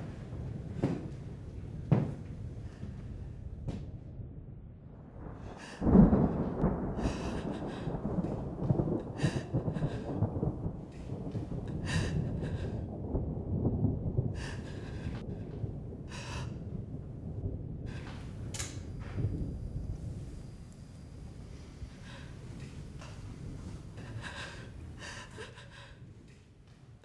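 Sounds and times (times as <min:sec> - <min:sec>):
sharp gasping breaths: 0:07.0 - 0:11.0, 0:11.7 - 0:12.9, 0:21.6 - 0:26.0.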